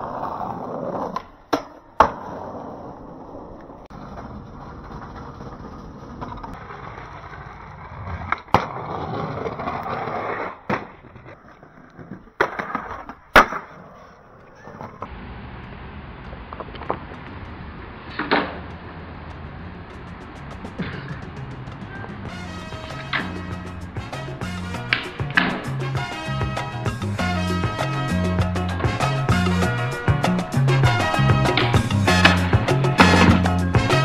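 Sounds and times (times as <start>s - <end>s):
skateboard wheels rolling: 0.0s - 34.0s
skateboard pops and landing smacks: 1.1s - 2.6s, 8.2s - 15.1s, 18.1s - 18.7s, 24.9s - 25.8s, 31.5s - 34.0s.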